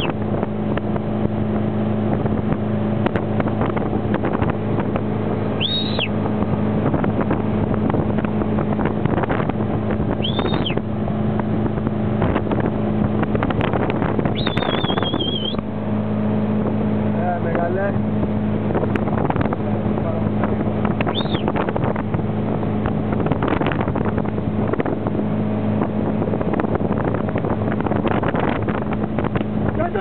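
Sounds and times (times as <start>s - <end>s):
boat engine running: 0.0s - 30.0s
water rushing: 0.0s - 30.0s
wind on microphone: 0.0s - 30.0s
high whistle: 5.6s - 6.1s, 10.2s - 10.8s, 14.4s - 15.6s, 21.1s - 21.5s.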